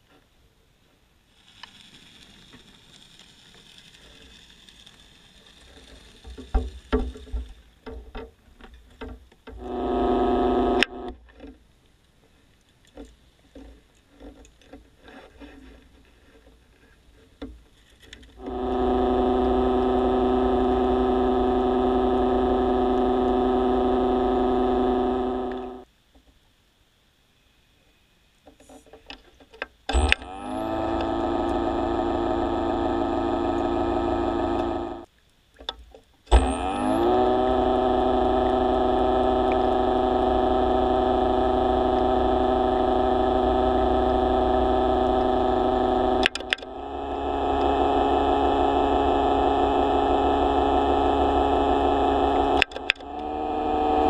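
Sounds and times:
underwater motor hum: 9.0 - 11.4, 18.4 - 25.9, 29.9 - 35.1, 36.3 - 54.0.

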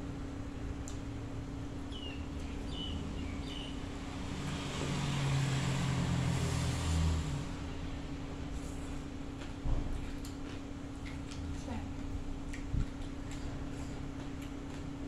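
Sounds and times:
steady low hum: 0.0 - 4.9, 7.4 - 15.0
vehicle passing: 3.1 - 8.0.

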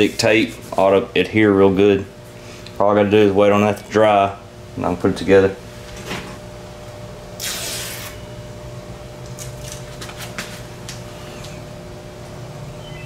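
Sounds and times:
steady hum: 0.0 - 13.0
short rasping hiss: 7.4 - 8.2.

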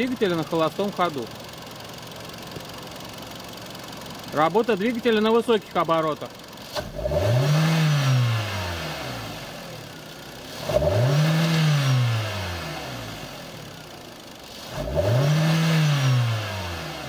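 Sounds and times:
car engine revving: 6.6 - 17.0.

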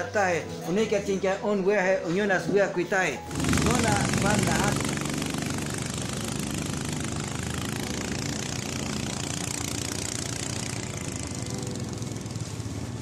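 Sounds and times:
wind: 0.0 - 13.0
boat engine running: 3.3 - 13.0.

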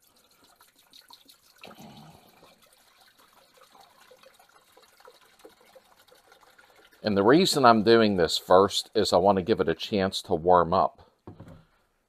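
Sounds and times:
liquid trickling into metal tank: 0.0 - 8.2.

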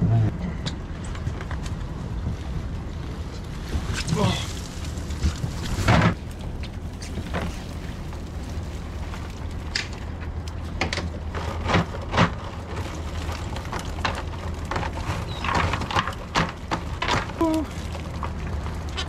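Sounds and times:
outboard engines idling: 4.2 - 19.0.

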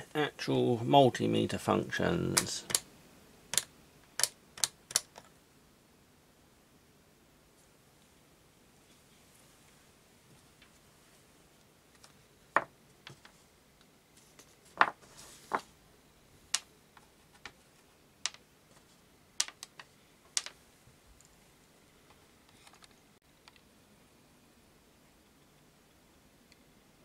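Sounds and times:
plastic probe caps clicking: 3.5 - 5.3.

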